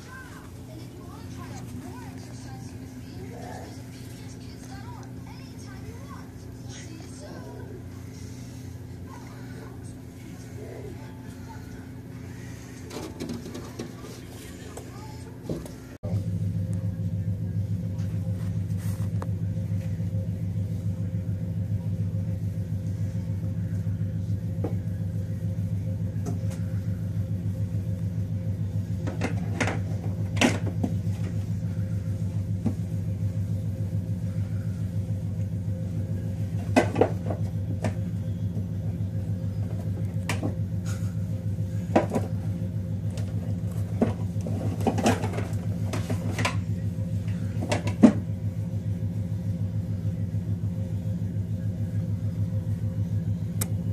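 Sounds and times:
low mechanical hum: 0.0s - 53.9s.

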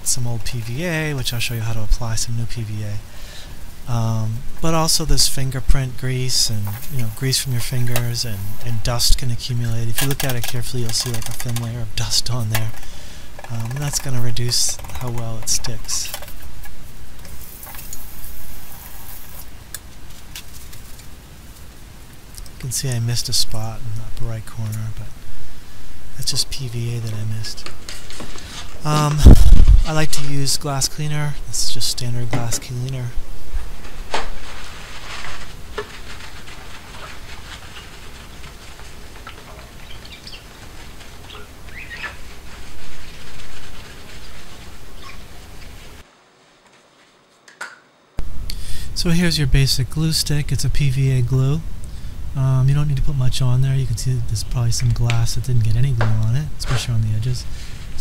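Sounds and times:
paper towel rubbing glass: 6.3s - 9.8s, 33.7s - 46.0s
paper squeaking on glass: 34.2s - 46.0s.

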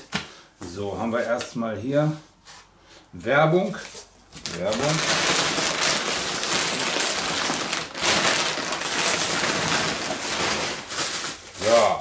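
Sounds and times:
plastic bags crinkling: 4.3s - 12.0s
hands rummaging in cardboard box: 4.4s - 11.9s.

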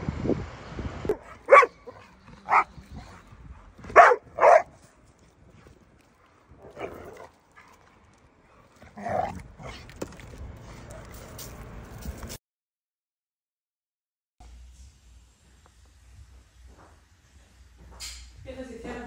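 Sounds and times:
dog barking: 1.1s - 2.8s, 3.9s - 4.8s.

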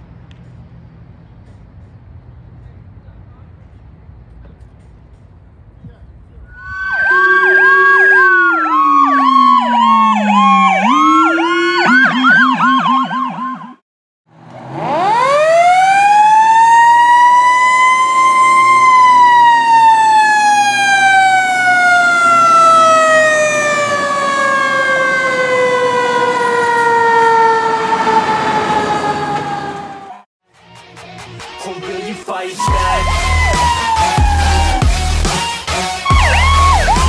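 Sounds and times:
electronic siren yelp: 6.5s - 13.8s, 14.8s - 30.2s, 32.6s - 35.3s, 36.0s - 37.0s.

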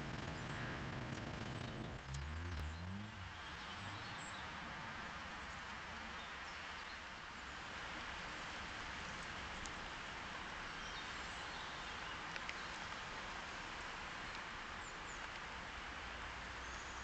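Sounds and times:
outdoor background hiss: 0.0s - 17.0s.

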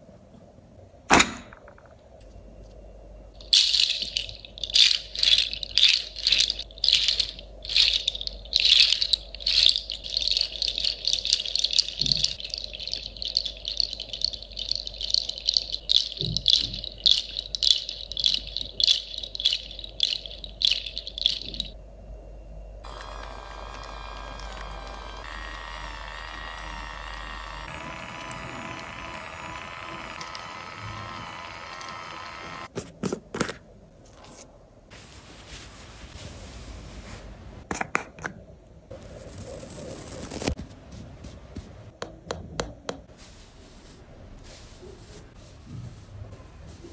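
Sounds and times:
shaken rattle: 3.4s - 21.8s.

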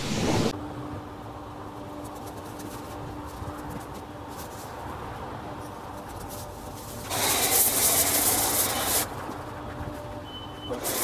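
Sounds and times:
pressure washer spray hiss: 7.0s - 9.1s, 10.7s - 11.0s.

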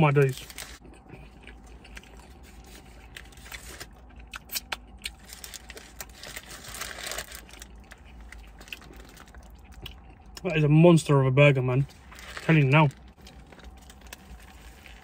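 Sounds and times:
paper wrapper crinkling: 0.2s - 0.8s, 5.1s - 9.5s, 11.9s - 15.0s
chewing: 0.7s - 6.1s, 7.4s - 10.4s.

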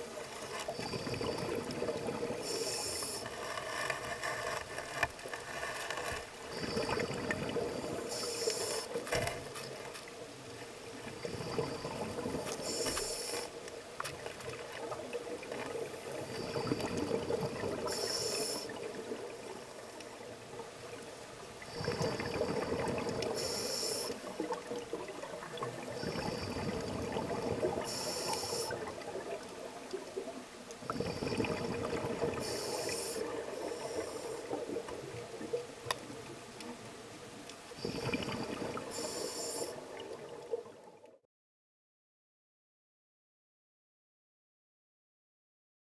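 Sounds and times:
exhaled air bubbling: 0.0s - 3.3s, 6.3s - 9.0s, 10.8s - 12.8s, 13.8s - 36.7s, 37.8s - 41.2s
regulator air hiss: 2.3s - 3.3s, 7.9s - 9.0s, 12.5s - 13.6s, 17.9s - 18.8s, 23.3s - 24.3s, 27.8s - 28.8s, 32.4s - 34.5s, 38.9s - 39.8s.

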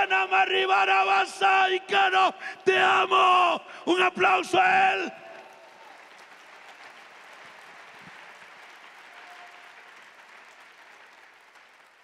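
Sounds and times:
congregation clapping: 4.8s - 12.0s.

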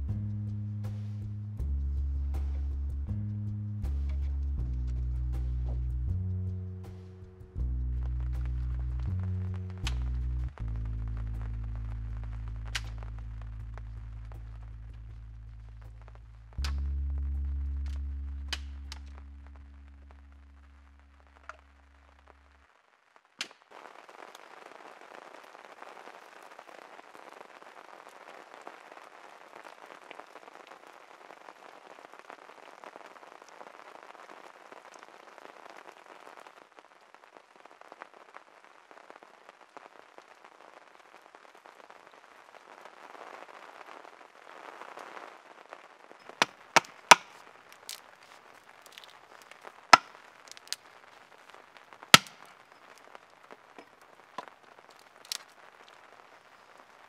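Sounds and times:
fire crackling: 0.0s - 57.0s
twigs popping and snapping: 8.1s - 11.6s, 12.4s - 19.6s, 46.2s - 50.9s, 52.0s - 53.0s, 53.8s - 55.6s.

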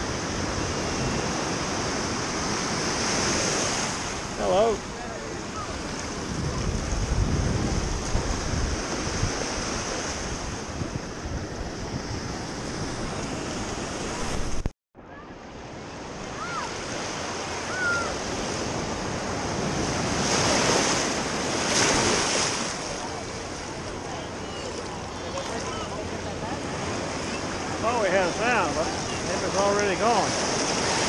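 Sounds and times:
ocean surf washing: 0.0s - 14.7s, 15.3s - 31.0s
wind buffeting microphone: 4.9s - 14.7s.

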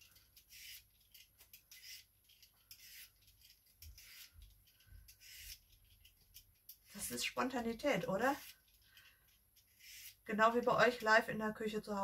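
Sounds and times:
vegetable peeler scraping cucumber: 0.0s - 8.9s, 9.6s - 11.1s.

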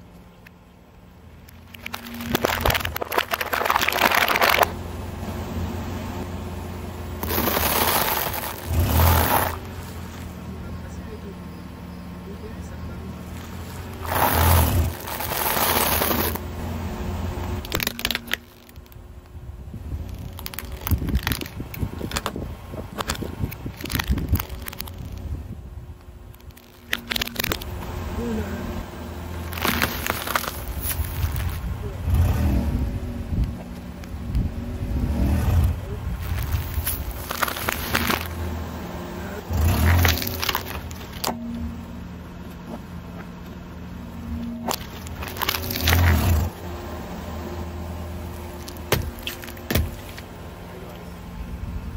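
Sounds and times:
low steady hum: 0.0s - 51.9s
tyre crunching dry noodles: 1.7s - 4.7s, 7.2s - 10.2s, 13.3s - 16.5s, 20.0s - 22.3s, 23.0s - 25.2s, 29.4s - 31.7s, 36.2s - 38.5s, 39.4s - 41.4s, 44.6s - 46.6s, 48.3s - 50.3s.

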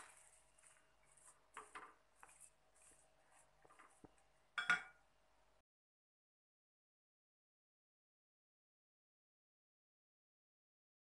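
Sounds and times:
spatula scraping a pan: 0.0s - 4.2s.

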